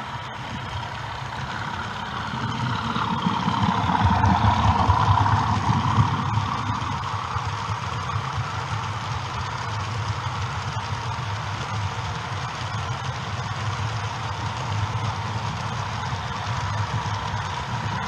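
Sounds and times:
model train rumbling past: 0.0s - 12.7s.

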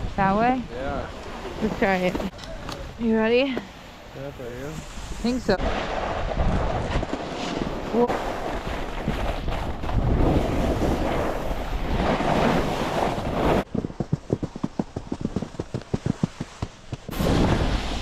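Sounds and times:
snowboard scraping over snow: 4.2s - 18.0s
wind rushing over microphone: 4.6s - 18.0s.

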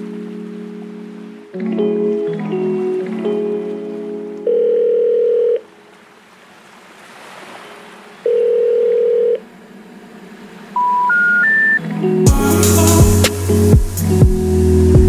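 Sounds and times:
telephone ringback beeps: 4.4s - 5.6s, 8.3s - 9.4s, 10.8s - 11.8s.

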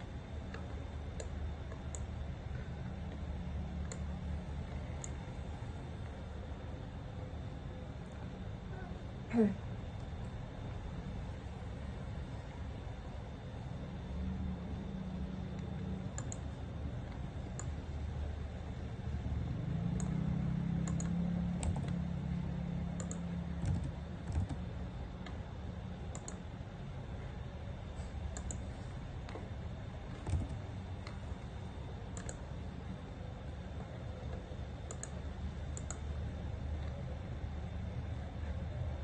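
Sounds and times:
steady low hum: 0.0s - 39.0s
computer mouse clicking: 0.5s - 2.1s, 3.8s - 5.2s, 15.5s - 17.8s, 19.9s - 20.2s, 20.8s - 22.0s, 23.0s - 24.6s, 26.1s - 26.4s, 28.2s - 29.5s, 30.1s - 31.2s, 32.1s - 32.5s, 34.3s - 36.1s.

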